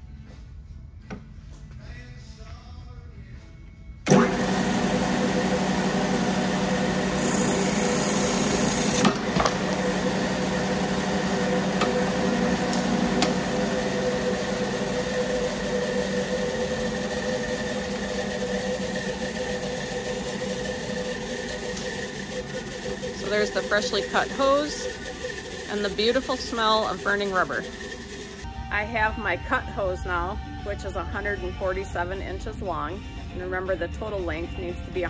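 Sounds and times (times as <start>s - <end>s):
saw blade cutting rubber hose: 4.1s - 28.5s
saw motor humming: 4.1s - 28.5s.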